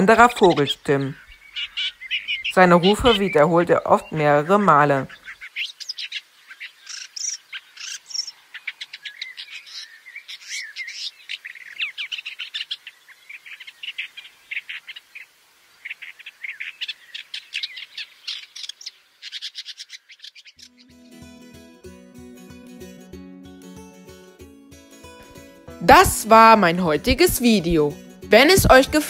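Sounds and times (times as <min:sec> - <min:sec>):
shrike singing: 0:20.6 - 0:29.0.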